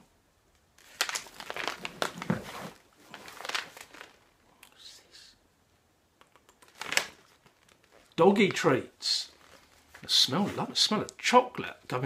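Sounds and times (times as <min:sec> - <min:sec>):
plastic pouch crinkling: 0:00.8 - 0:04.3, 0:06.6 - 0:08.2, 0:09.2 - 0:10.1.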